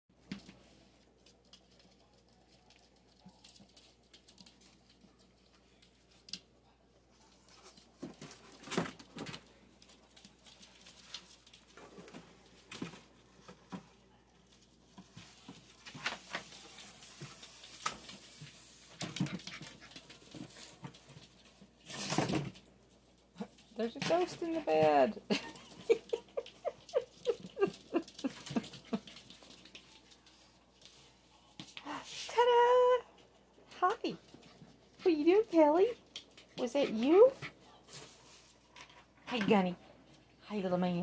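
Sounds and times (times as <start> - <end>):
puppies scuffling in play: 0.2 - 32.4.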